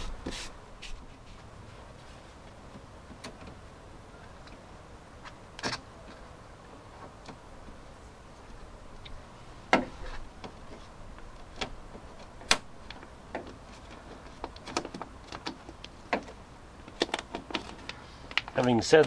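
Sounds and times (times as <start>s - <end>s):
plastic membrane clicking and crackling: 11.5s - 18.8s.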